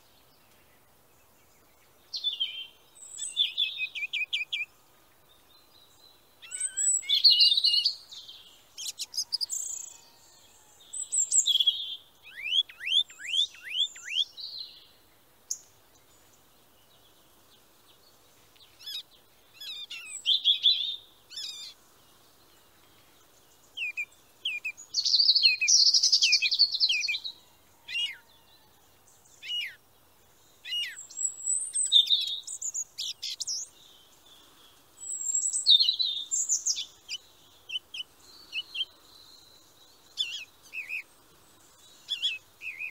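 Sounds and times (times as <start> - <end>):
songbirds chirping and trilling: 0.0 - 42.9.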